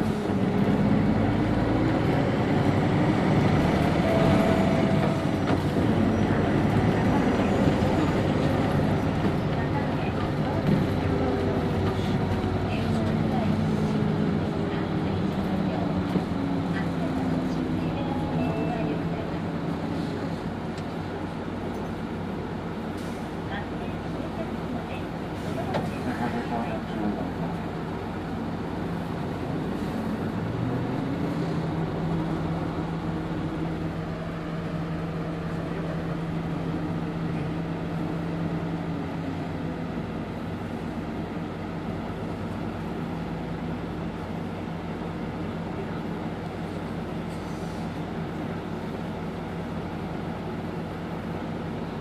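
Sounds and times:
bus engine: 0.0 - 52.0
road noise: 0.0 - 52.0.

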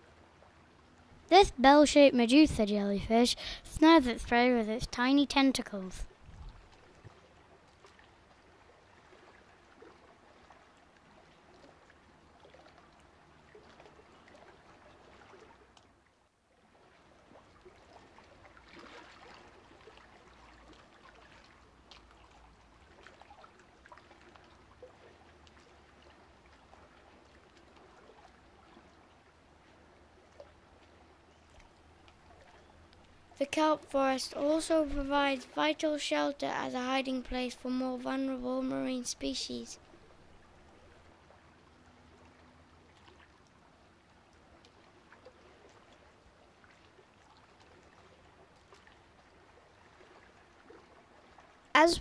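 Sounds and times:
low steady hum: 0.0 - 46.8
faint watery hiss: 1.4 - 5.0.

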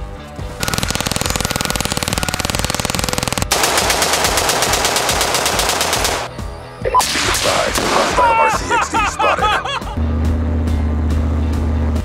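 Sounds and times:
automatic rifle fire: 0.6 - 6.3.

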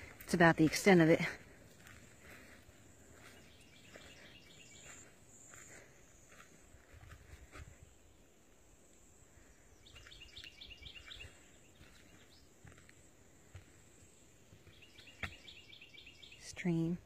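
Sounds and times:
bird chirping: 3.2 - 5.4, 9.4 - 12.6, 14.5 - 17.0.

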